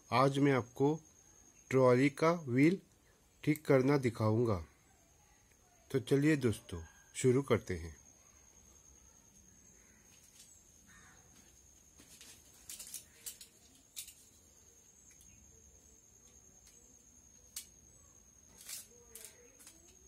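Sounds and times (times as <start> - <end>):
faint clicks and crackles: 12.0 - 15.4, 18.4 - 20.0.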